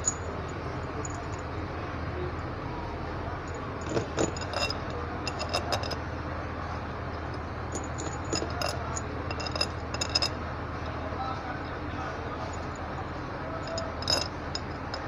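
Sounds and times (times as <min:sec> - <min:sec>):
steady low hum: 0:00.0 - 0:15.0
metal bolts clinking: 0:03.4 - 0:06.0, 0:07.3 - 0:10.3, 0:13.6 - 0:15.0.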